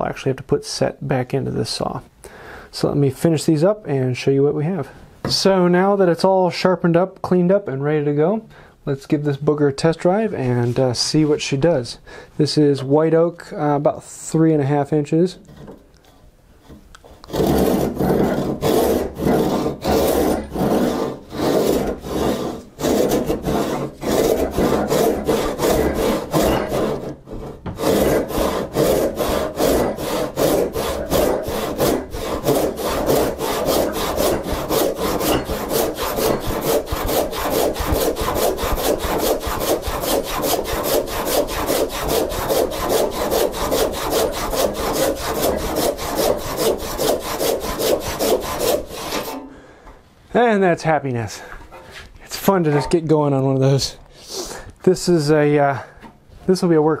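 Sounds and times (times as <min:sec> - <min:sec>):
hand saw cutting wood: 0:16.6 - 0:49.5.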